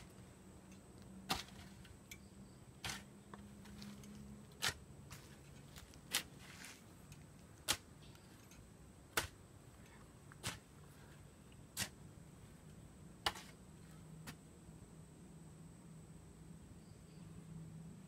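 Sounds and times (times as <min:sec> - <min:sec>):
shovel digging into earth: 0:01.2 - 0:02.0, 0:02.8 - 0:09.5, 0:10.4 - 0:12.1, 0:13.2 - 0:13.6.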